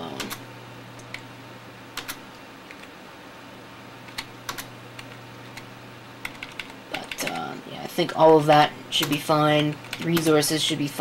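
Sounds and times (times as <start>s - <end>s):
steady low hum: 0.0s - 11.0s
computer keyboard key clicks: 2.0s - 2.9s, 4.1s - 7.4s.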